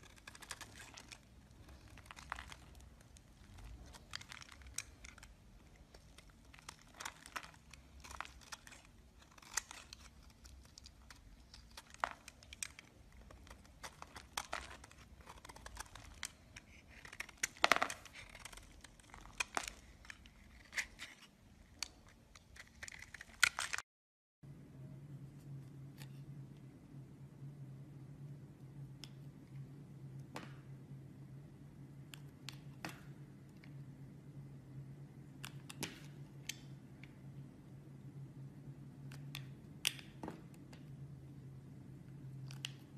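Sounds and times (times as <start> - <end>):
knife shaving bar of soap: 0.0 - 23.8.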